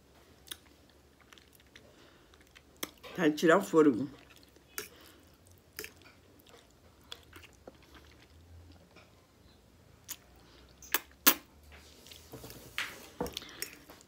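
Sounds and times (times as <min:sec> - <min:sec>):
chewing spaghetti: 0:00.2 - 0:03.2, 0:03.9 - 0:09.2, 0:10.0 - 0:14.0
wet mouth clicks: 0:10.0 - 0:11.5.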